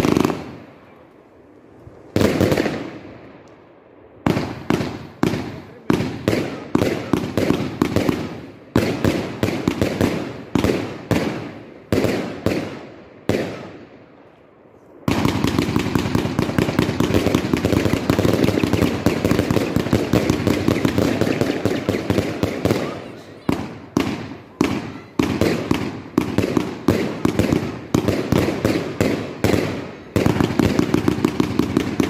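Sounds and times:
fireworks bangs: 0.0s - 0.9s, 1.5s - 3.4s, 4.2s - 14.2s, 15.0s - 32.0s
rapid firework rattle: 15.1s - 32.0s.

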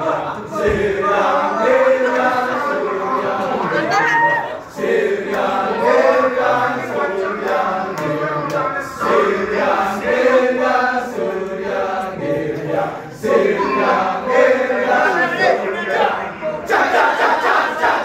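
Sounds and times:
men chanting in rhythm: 5.0s - 18.0s.

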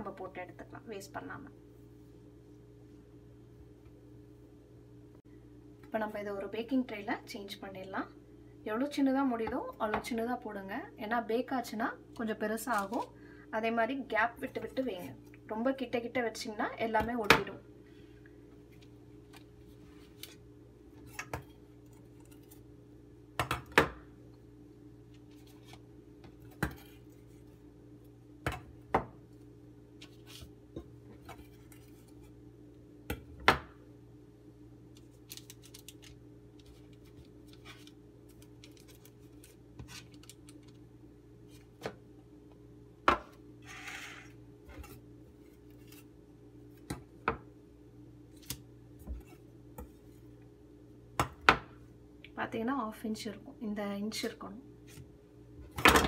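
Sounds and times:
paper rustle: 35.0s - 40.7s.

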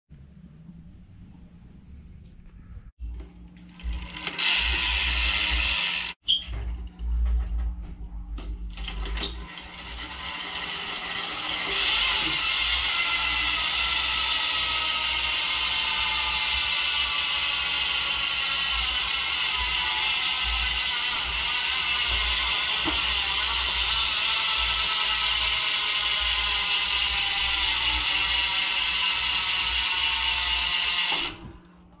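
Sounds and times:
bicycle freehub ratcheting buzz: 3.8s - 6.4s, 8.7s - 31.4s
bike freehub clicking: 3.8s - 6.4s.

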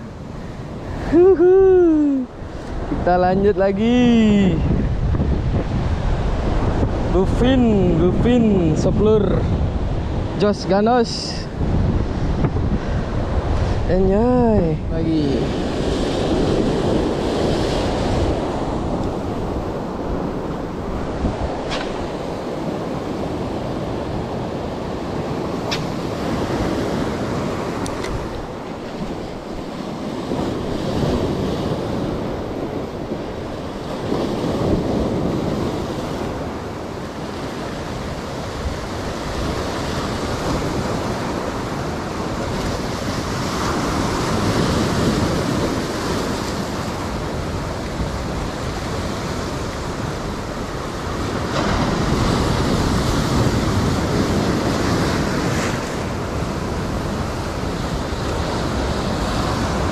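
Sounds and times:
wind buffeting microphone: 0.0s - 59.9s.

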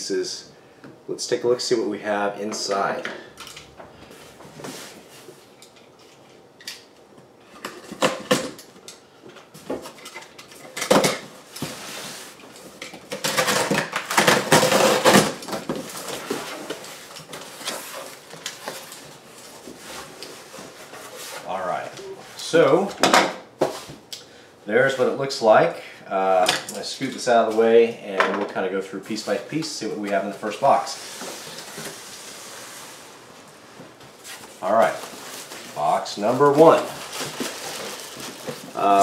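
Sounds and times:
cardboard rustling: 13.1s - 21.8s, 33.8s - 39.0s.

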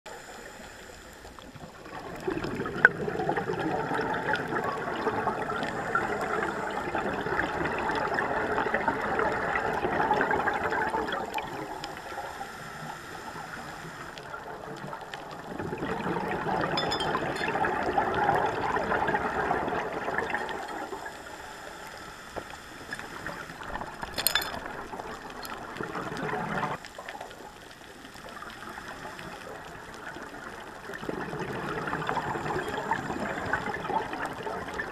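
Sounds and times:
regulator bubbles underwater: 0.1s - 34.9s.

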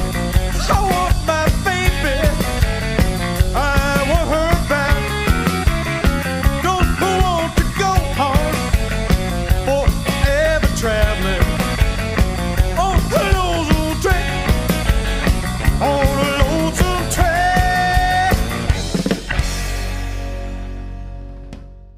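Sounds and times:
steady drum beat: 0.0s - 20.6s
rock and roll band playing: 0.0s - 21.9s
person singing: 0.4s - 2.6s, 3.4s - 5.3s, 6.4s - 8.8s, 9.6s - 11.8s, 12.8s - 14.6s, 15.7s - 18.7s.

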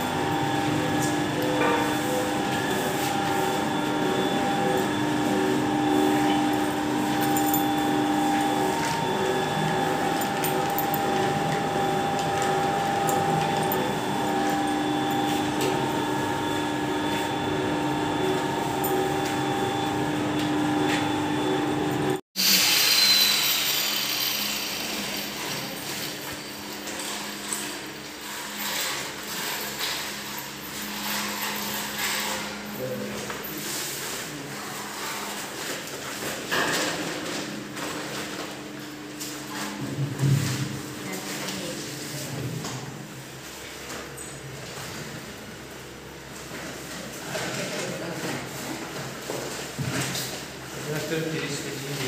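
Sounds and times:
noodle machine whine: 0.0s - 28.0s.

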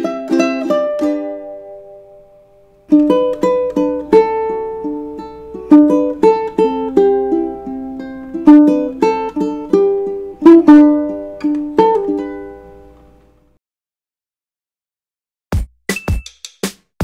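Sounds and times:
ukulele melody and chords: 0.0s - 13.5s.

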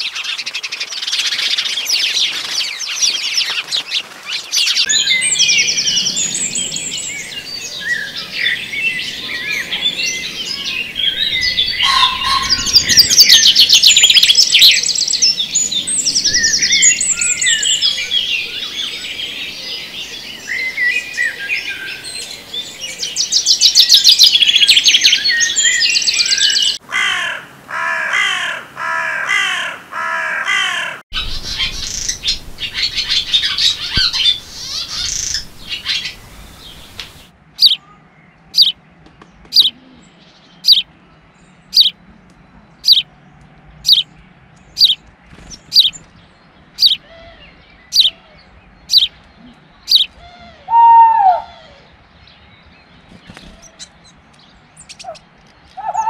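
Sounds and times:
songbirds singing: 0.0s - 27.6s, 29.4s - 56.0s.

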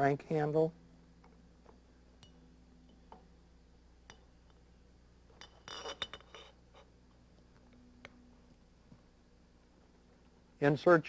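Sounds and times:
metal tube clinking: 5.4s - 6.6s.

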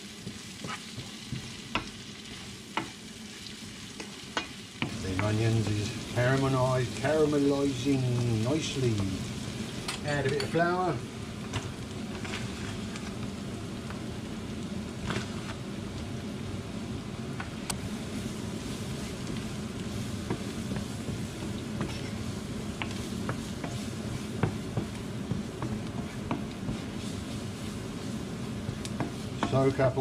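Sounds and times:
onions sizzling in a frying pan: 0.0s - 30.0s
wooden spoon scraping a pan: 0.2s - 3.0s, 11.6s - 13.2s, 18.1s - 30.0s.

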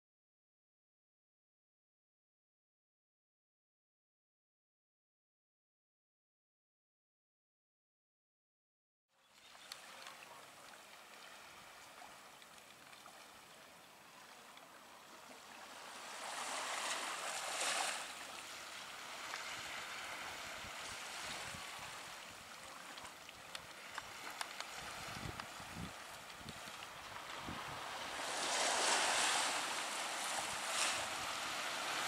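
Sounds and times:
wind: 9.1s - 32.0s
waves at the shore: 9.2s - 32.0s
wind buffeting microphone: 24.7s - 29.2s.

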